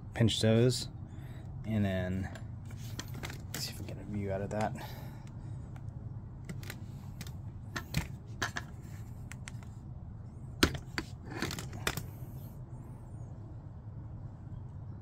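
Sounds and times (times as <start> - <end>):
steady low hum: 0.0 - 15.0
rifle handling clicks and taps: 6.5 - 9.7.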